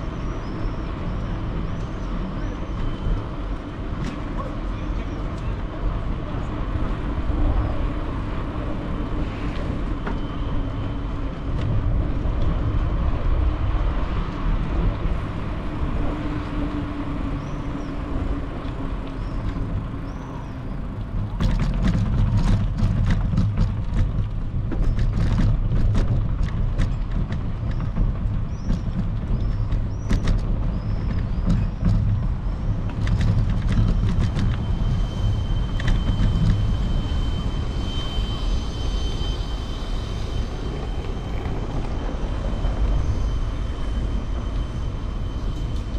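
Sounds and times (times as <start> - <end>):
bicycle tyres rolling hum: 0.0 - 45.9
wind rumbling on microphone: 0.0 - 45.9
bicycle rattling over paving: 6.8 - 38.4.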